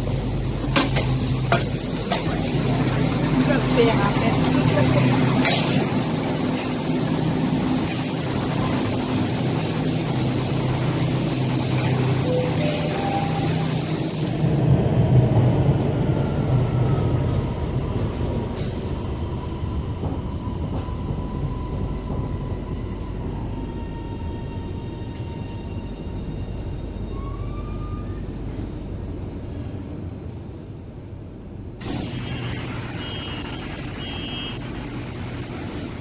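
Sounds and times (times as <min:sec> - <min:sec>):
wheels rumbling on rails: 0:00.0 - 0:36.0.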